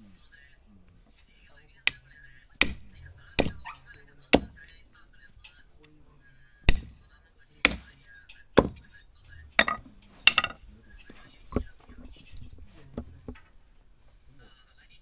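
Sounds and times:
heavy blade chopping: 0:06.7 - 0:06.9, 0:07.6 - 0:08.0, 0:08.6 - 0:08.8.

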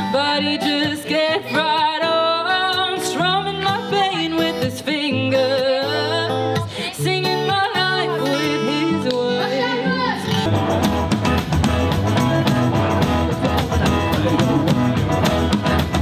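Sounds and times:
woman singing: 0:00.0 - 0:10.5
acoustic guitar: 0:00.0 - 0:16.0.

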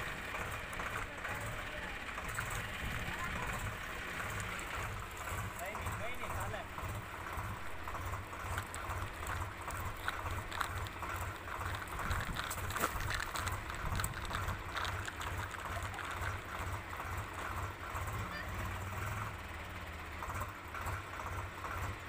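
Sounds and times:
low pulsing rumble: 0:00.0 - 0:18.4
toy wheels crunching on soil: 0:07.6 - 0:17.6.

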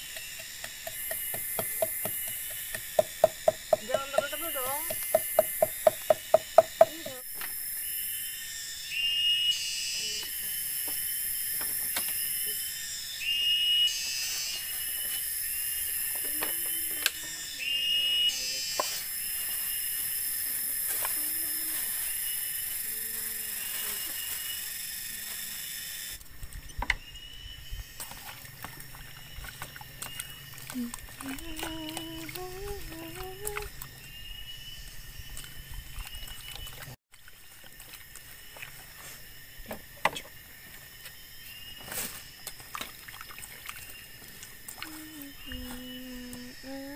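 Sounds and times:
insects droning: 0:00.0 - 0:46.9.

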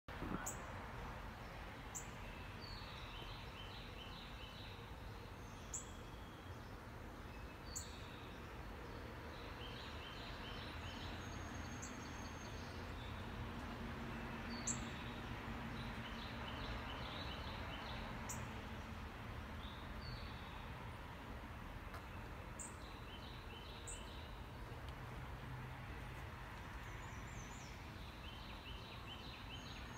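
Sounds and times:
birds singing: 0:01.9 - 0:18.6, 0:21.8 - 0:24.8, 0:26.8 - 0:29.9.

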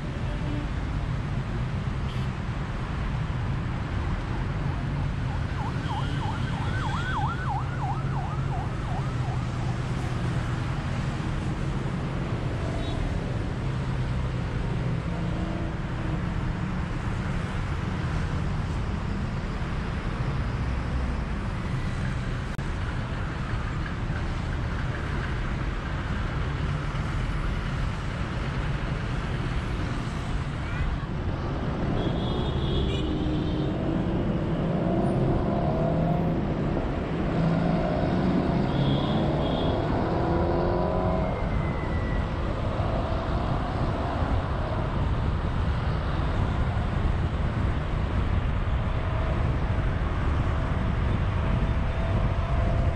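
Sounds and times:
car road and engine noise: 0:00.0 - 0:52.9
siren yelping: 0:05.2 - 0:09.8.

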